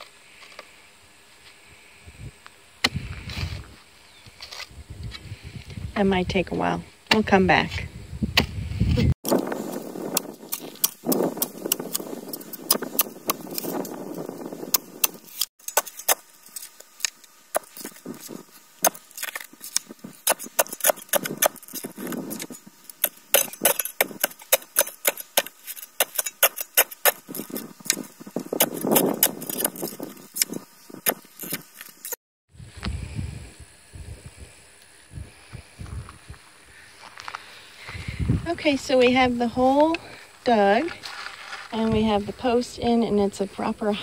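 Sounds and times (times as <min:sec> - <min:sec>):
soil scraping and crunching: 0:02.8 - 0:05.8, 0:08.8 - 0:32.2, 0:35.8 - 0:44.0.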